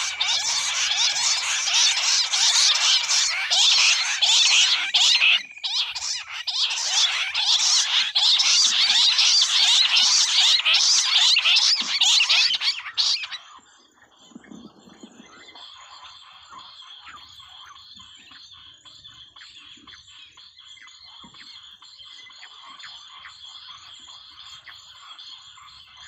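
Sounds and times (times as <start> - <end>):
quail calling in chorus: 0.0 - 13.6.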